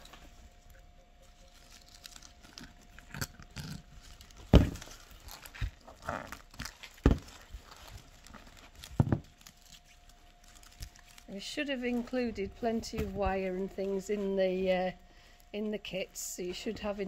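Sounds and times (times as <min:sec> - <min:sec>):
rustling of fir and holly sprigs: 0:03.8 - 0:14.9.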